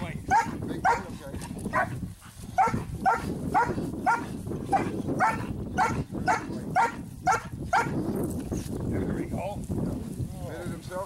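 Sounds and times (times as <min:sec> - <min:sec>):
puppy barking: 0:00.3 - 0:01.1, 0:01.7 - 0:02.0, 0:02.6 - 0:08.0.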